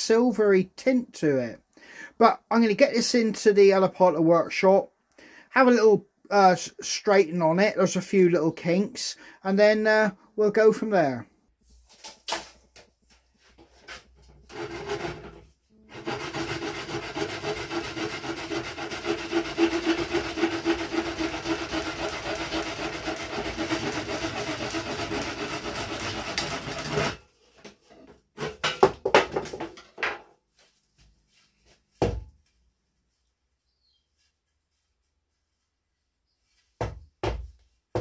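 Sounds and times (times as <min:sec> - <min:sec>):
saw cutting through stick: 0:13.9 - 0:27.2
stick knocks and tools handled: 0:27.5 - 0:32.6.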